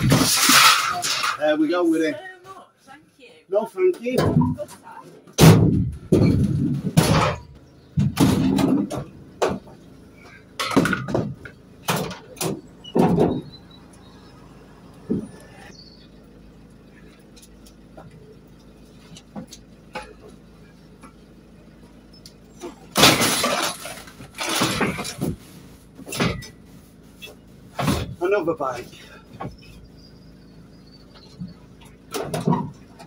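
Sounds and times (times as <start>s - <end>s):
metal equipment clanking and thumping: 5.4s - 9.8s, 10.6s - 13.6s, 31.8s - 33.0s.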